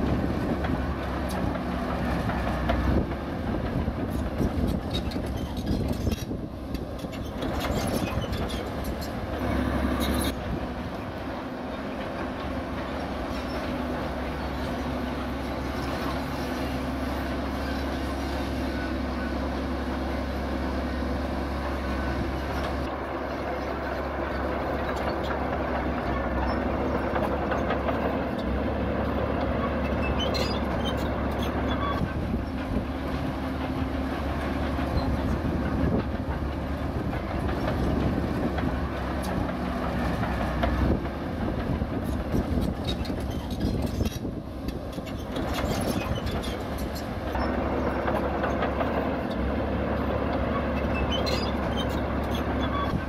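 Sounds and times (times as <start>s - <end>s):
diesel engine under load: 0.0s - 53.0s
steel tracks clanking: 21.5s - 53.0s.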